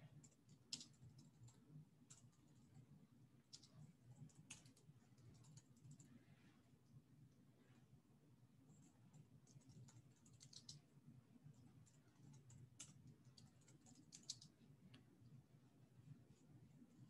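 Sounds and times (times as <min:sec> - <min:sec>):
typing on computer keyboard: 0:00.1 - 0:06.1, 0:08.7 - 0:14.7.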